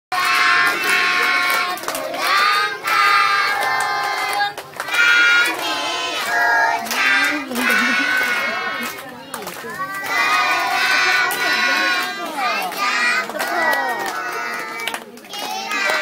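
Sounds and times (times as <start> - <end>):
hands clapping: 0.1 - 16.0
children singing in chorus: 0.2 - 8.9, 9.8 - 16.0.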